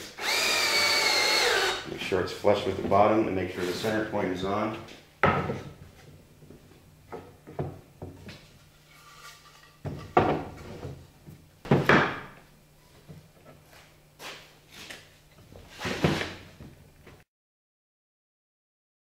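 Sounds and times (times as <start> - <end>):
wooden knocks on plywood: 11.6 - 12.4.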